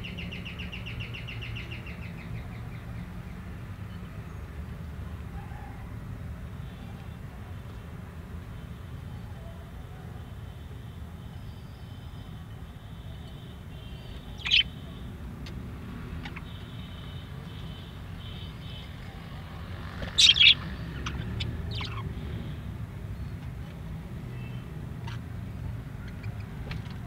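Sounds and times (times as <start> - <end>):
budgerigars chirping: 14.0 - 14.8, 20.0 - 22.0, 26.0 - 26.6.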